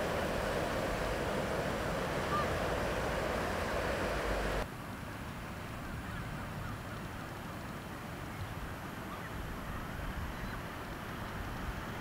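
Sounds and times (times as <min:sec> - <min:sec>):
distant surf: 0:00.0 - 0:12.0
wind: 0:00.0 - 0:12.0
seagulls calling: 0:02.1 - 0:03.6.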